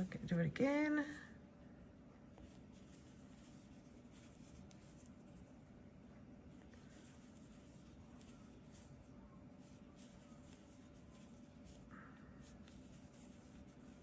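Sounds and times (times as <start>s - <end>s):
low room hum: 0.0s - 14.0s
yarn rustling through crochet hook: 2.3s - 5.7s, 6.4s - 14.0s.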